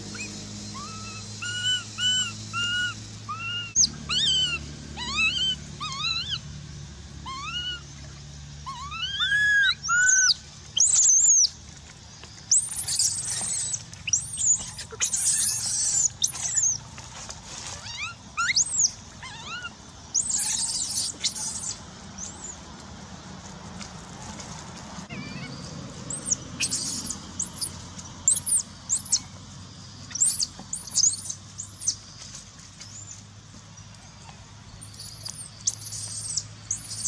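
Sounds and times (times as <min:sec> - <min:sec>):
baby monkey crying: 0:00.1 - 0:06.4, 0:07.2 - 0:07.9, 0:08.6 - 0:11.3, 0:12.5 - 0:16.8, 0:17.8 - 0:22.6, 0:25.1 - 0:27.7, 0:30.1 - 0:31.4.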